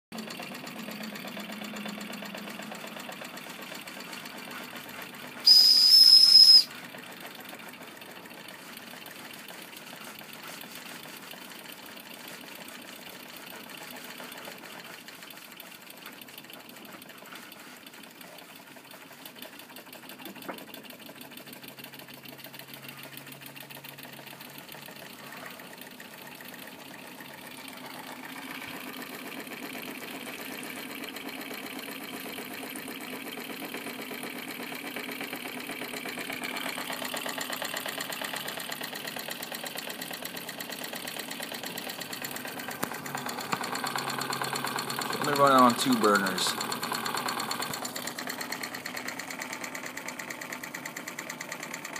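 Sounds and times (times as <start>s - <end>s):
toy steam engine chuffing: 0.2s - 51.9s
steam hissing: 5.5s - 6.7s.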